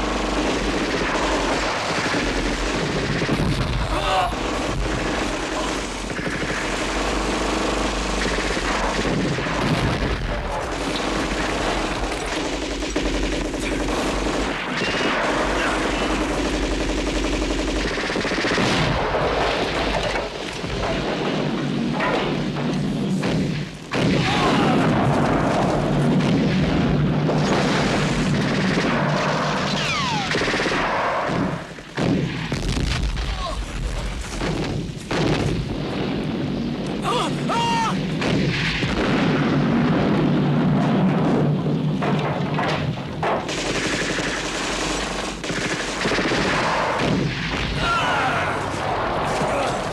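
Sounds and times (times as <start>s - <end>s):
booms: 0.6s - 7.0s, 8.2s - 16.8s, 17.9s - 49.9s
machine-gun bursts: 4.4s - 20.0s, 27.4s - 31.1s, 43.5s - 47.0s
steady low rumble: 30.4s - 47.6s.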